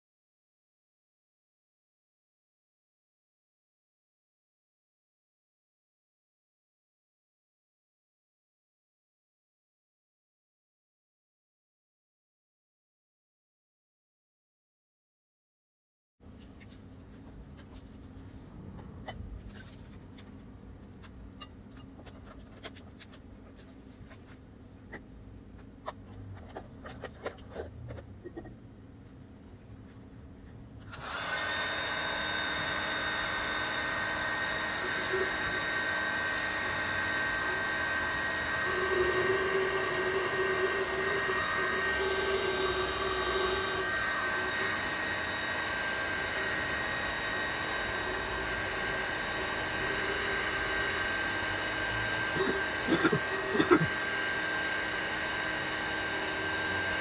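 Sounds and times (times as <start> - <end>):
hot-air blower rushing: 30.9 - 57.0.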